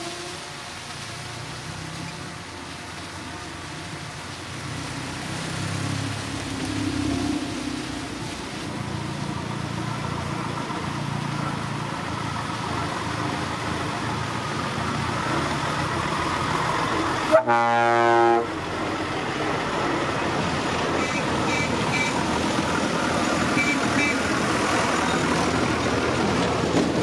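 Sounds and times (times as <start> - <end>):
lorry diesel engine running: 7.6 - 27.0
truck horn blast: 17.3 - 18.6, 21.0 - 22.2, 23.5 - 24.2.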